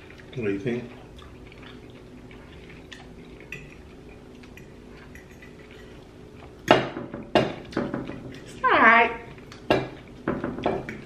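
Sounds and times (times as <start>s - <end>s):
low room hum: 0.0s - 11.0s
forks clinking on plates: 3.4s - 6.0s.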